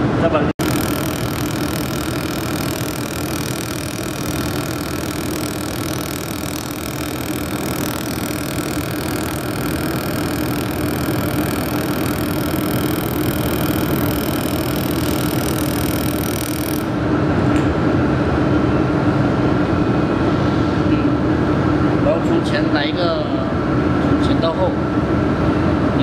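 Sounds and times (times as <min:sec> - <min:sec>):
welding machine mechanical hum: 0:00.3 - 0:17.8
welding gun hissing: 0:00.6 - 0:16.9.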